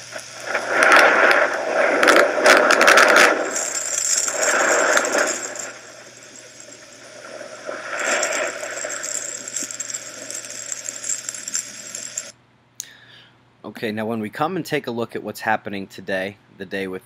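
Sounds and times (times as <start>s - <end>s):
thunder-like scratchy noise: 0.0s - 12.3s.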